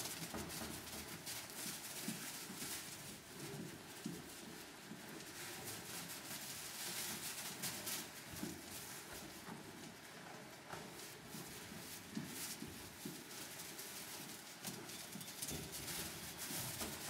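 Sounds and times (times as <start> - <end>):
lamb hooves thumping: 0.0 - 17.0.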